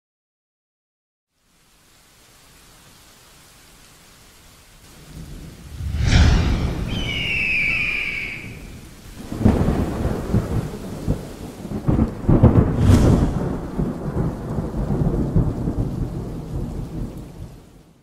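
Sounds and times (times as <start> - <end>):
rain: 1.3 - 18.0
thunder rolling: 5.0 - 17.0
sharp thunder crack: 5.2 - 11.1, 11.7 - 15.8.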